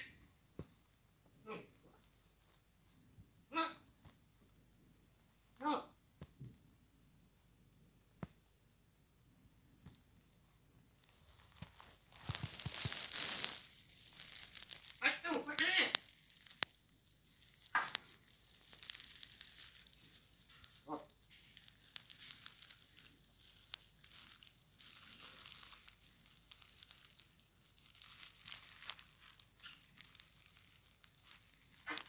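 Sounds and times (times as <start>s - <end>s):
rustling and crinkling: 0.0s - 3.2s, 9.6s - 32.0s
parrot calls: 17.7s - 18.0s, 20.5s - 21.1s.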